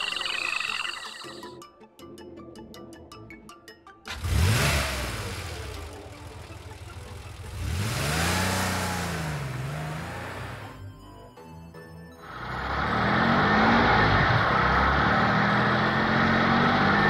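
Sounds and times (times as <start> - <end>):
car engine revving: 4.1 - 10.8, 12.3 - 17.0.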